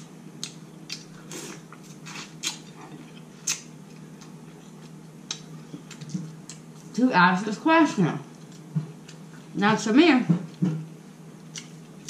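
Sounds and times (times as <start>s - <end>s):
low steady hum: 0.0s - 12.0s
person chewing wetly: 0.4s - 7.0s, 11.4s - 12.0s.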